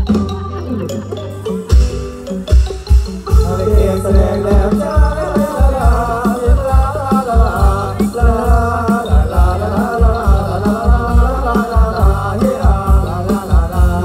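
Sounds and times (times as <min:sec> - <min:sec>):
wavering melody: 0:00.0 - 0:14.0
drum beat: 0:01.2 - 0:14.0.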